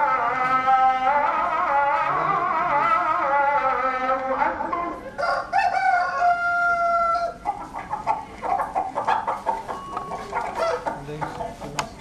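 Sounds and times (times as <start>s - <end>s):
clucking calls: 0.0s - 5.3s, 7.2s - 12.0s
rooster crowing: 5.2s - 7.4s, 10.5s - 10.9s.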